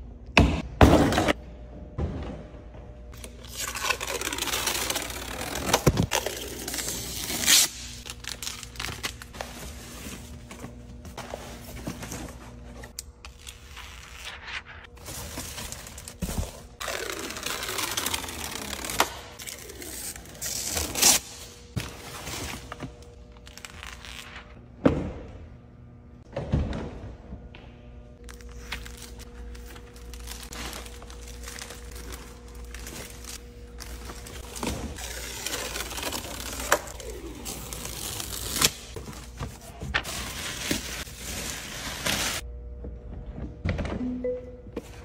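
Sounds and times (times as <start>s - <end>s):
plastic film crinkling: 28.3s - 39.0s.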